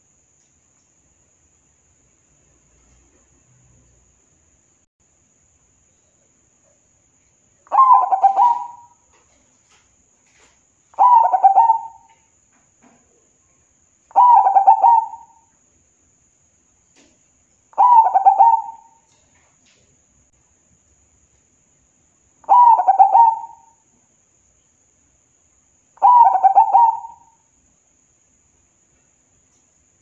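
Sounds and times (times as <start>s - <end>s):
dove cooing song: 7.7s - 9.0s, 11.0s - 12.2s, 14.1s - 15.4s, 17.8s - 19.0s, 22.4s - 23.8s, 26.0s - 27.4s.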